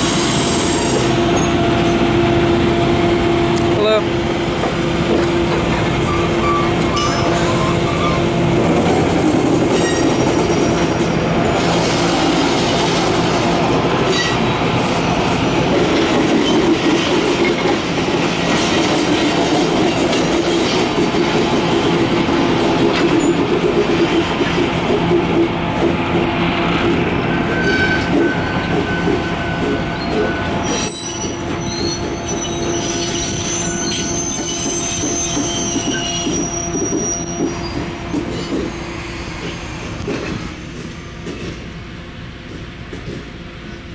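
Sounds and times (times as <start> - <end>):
train wheels rumbling: 0.0 - 43.9
high wheel squeals: 6.0 - 8.4, 27.2 - 37.8.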